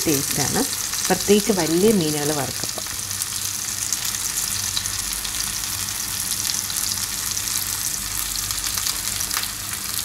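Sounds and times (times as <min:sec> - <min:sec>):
fish sizzling in oil: 0:00.0 - 0:10.0.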